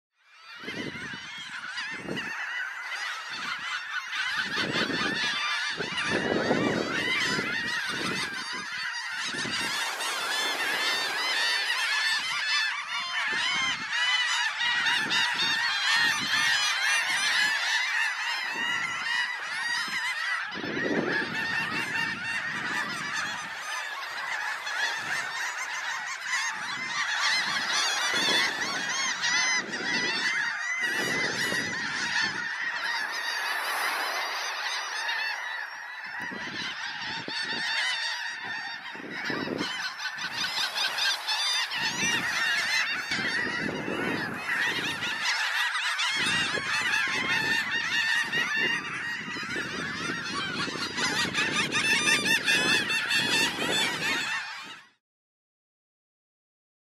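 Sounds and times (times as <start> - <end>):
shorebirds and gulls calling: 0.2 - 55.0.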